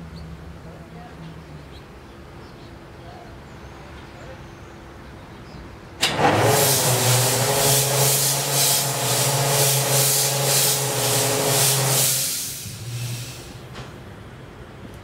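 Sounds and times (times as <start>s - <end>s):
compressed air hissing: 6.1s - 13.7s.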